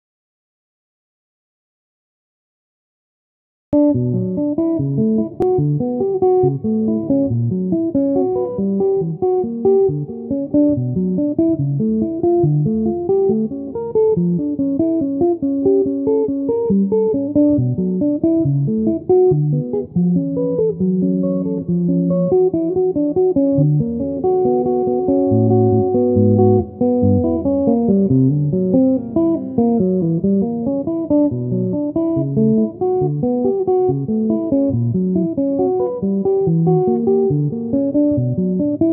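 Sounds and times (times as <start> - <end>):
clean electric guitar notes: 15.6 - 38.9.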